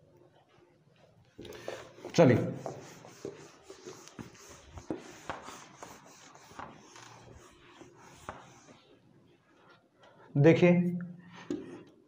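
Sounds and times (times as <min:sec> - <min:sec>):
duster rubbing whiteboard: 0:01.4 - 0:09.0.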